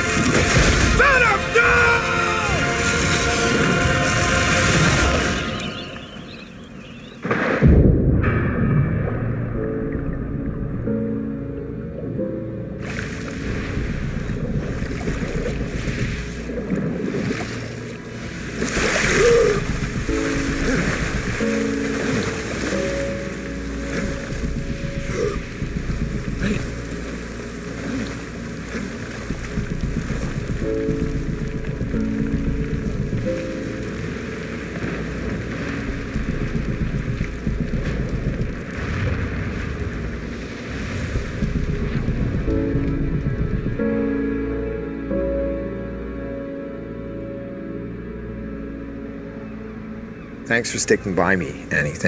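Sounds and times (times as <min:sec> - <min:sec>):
churning rushing water: 0:00.0 - 0:07.1, 0:12.7 - 0:44.4
large fire crackling: 0:00.0 - 0:08.6, 0:13.0 - 0:44.0.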